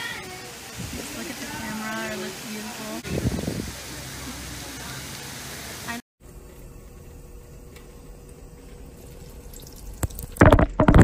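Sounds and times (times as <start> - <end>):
thin stream of water pouring: 8.9 - 10.7.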